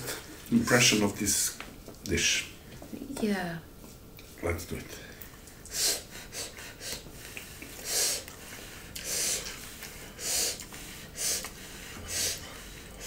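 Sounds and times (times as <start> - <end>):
breathing through the nose: 5.7 - 13.0
chewing food: 7.2 - 10.8, 11.4 - 11.6.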